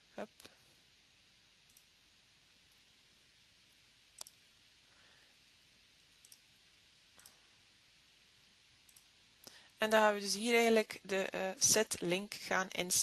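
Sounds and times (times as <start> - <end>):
computer mouse clicking: 1.6 - 1.9, 4.2 - 4.4, 6.2 - 6.5, 7.2 - 7.4, 8.9 - 9.1.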